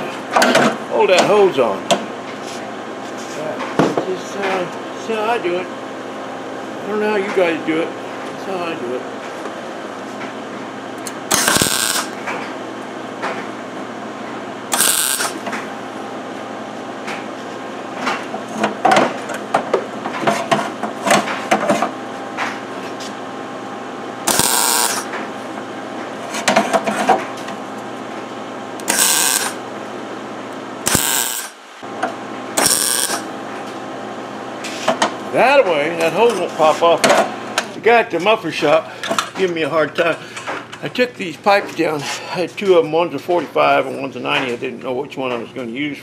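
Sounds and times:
steady machine hum: 0.0 - 46.0
welder crackling: 11.3 - 12.2, 14.7 - 15.4, 24.3 - 25.1, 28.8 - 29.6, 30.9 - 31.6, 32.6 - 33.3.

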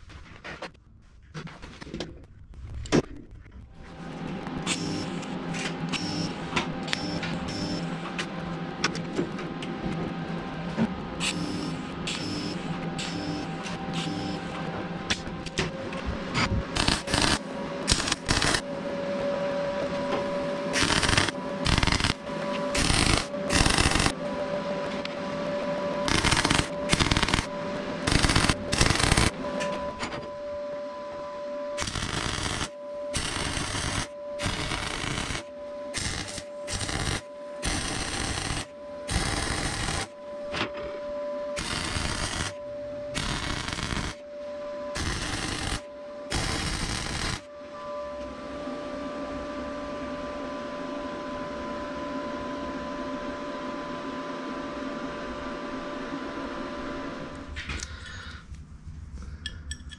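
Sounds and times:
thin steady whine: 2.6 - 59.9
welder arc crackling: 4.6 - 8.5, 11.2 - 18.6, 20.7 - 24.2, 26.0 - 29.4, 31.8 - 40.2, 41.6 - 42.6, 43.2 - 44.2, 45.0 - 47.5.

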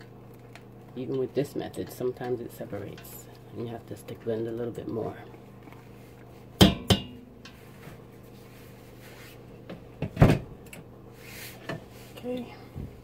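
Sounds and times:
faint steady hum: 0.0 - 13.0
blender knocking on metal pot: 6.6 - 7.2.

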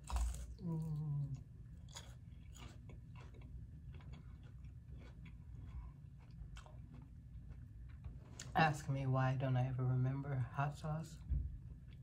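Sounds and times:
chewing crunches: 0.0 - 8.6.

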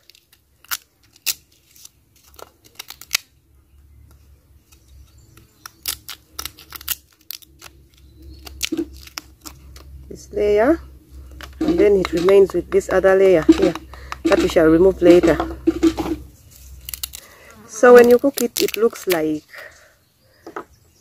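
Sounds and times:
knife scraping seed husk: 4.2 - 19.5.

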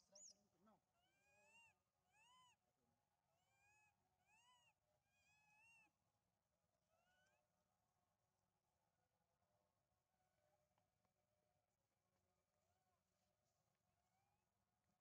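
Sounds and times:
baby monkey crying: 1.0 - 2.6.

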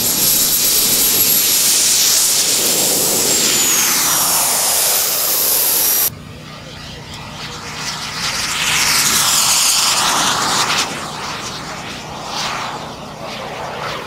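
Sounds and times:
model jet engine roaring: 0.0 - 14.0.

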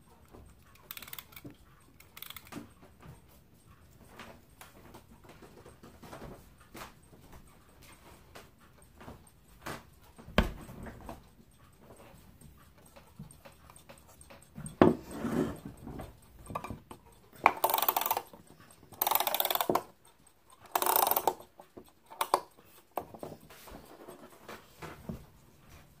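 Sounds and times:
clock winding ratchet clicking: 0.4 - 4.0, 11.2 - 24.1.

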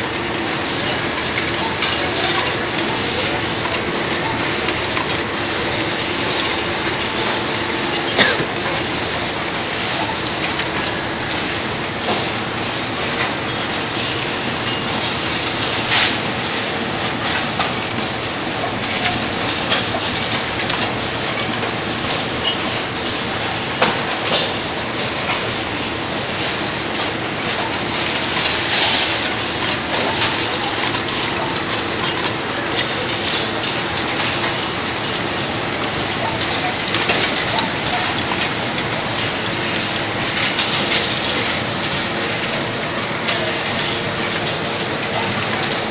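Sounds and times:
glass vials clattering on conveyor: 0.0 - 45.9.

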